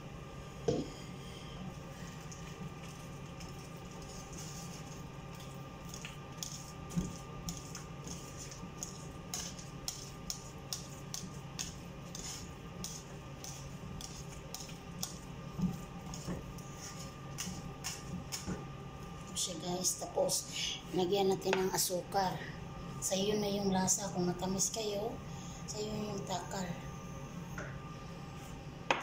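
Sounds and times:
whisk scraping against a pan: 0:02.9 - 0:05.5, 0:06.4 - 0:18.1.

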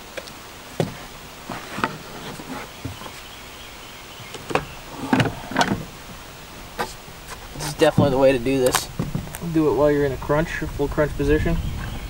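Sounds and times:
tools knocking on wooden boards: 0:07.9 - 0:08.2.

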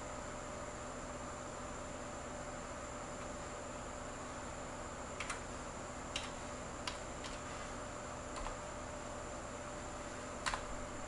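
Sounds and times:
faint high whine: 0:00.0 - 0:11.0
computer keys clicking: 0:05.2 - 0:05.5, 0:06.1 - 0:07.4, 0:08.3 - 0:08.6, 0:10.4 - 0:10.7.

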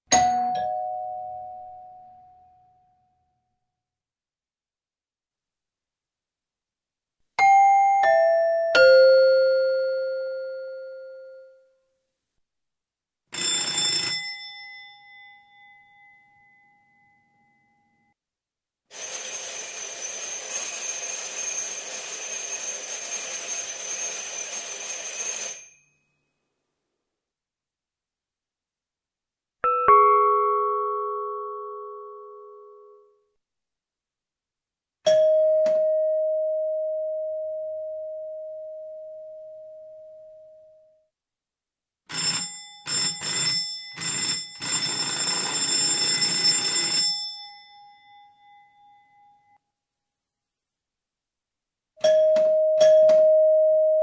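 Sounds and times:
electric doorbell ringing: 0:00.1 - 0:01.9, 0:13.4 - 0:17.1, 0:18.9 - 0:25.9, 0:42.1 - 0:49.3, 0:52.0 - 0:54.0.

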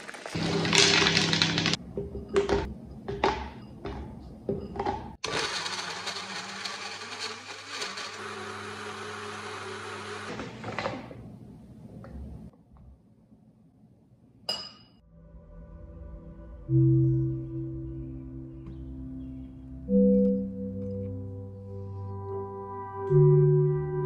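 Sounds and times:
bottle blender running: 0:00.1 - 0:01.8, 0:05.2 - 0:10.7.

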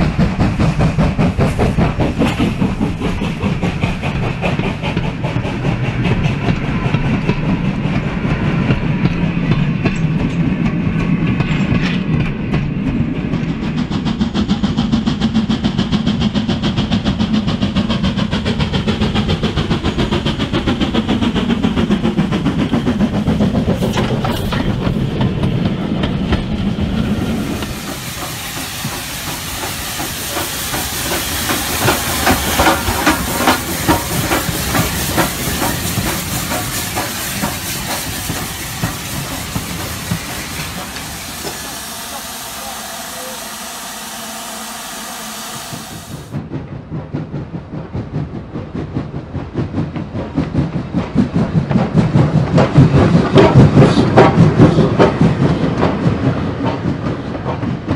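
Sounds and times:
model train rumble: 0:00.0 - 0:57.9
wheels clacking on track: 0:00.0 - 0:57.9
loud steam hiss: 0:21.4 - 0:46.4.

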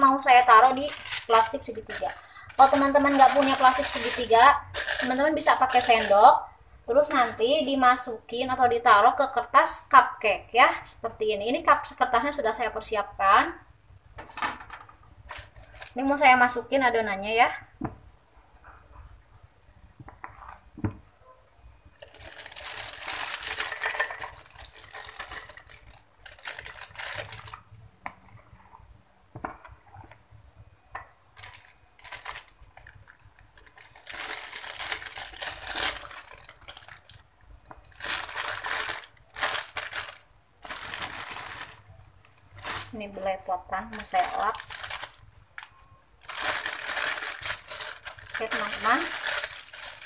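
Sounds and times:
plastic piping bag crinkling: 0:00.0 - 0:06.4, 0:15.2 - 0:16.3, 0:22.0 - 0:27.8, 0:31.3 - 0:50.0.

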